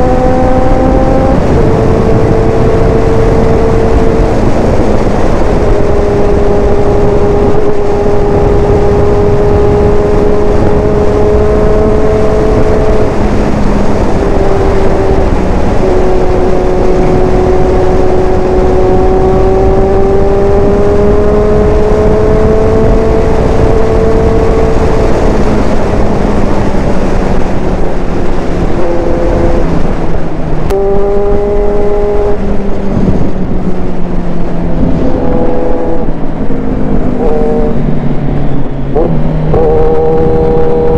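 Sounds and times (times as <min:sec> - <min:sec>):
motorcycle engine running hard: 0:00.0 - 0:40.9
wind rush over microphone: 0:00.0 - 0:40.9.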